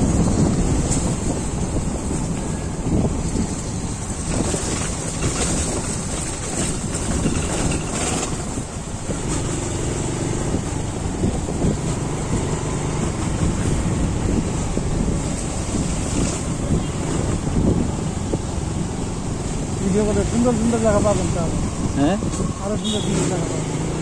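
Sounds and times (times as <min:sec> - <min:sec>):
road noise: 0:00.0 - 0:24.0
vehicle engine: 0:00.0 - 0:24.0
wind buffeting microphone: 0:00.0 - 0:24.0.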